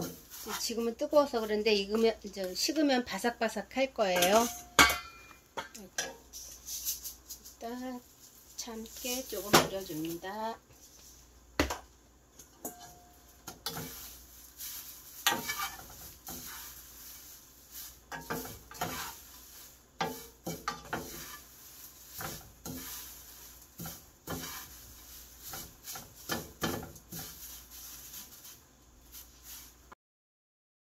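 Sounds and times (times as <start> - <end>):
wooden utensils scraping a pan: 0.0 - 2.2, 4.1 - 5.2, 8.6 - 11.2, 12.6 - 29.8.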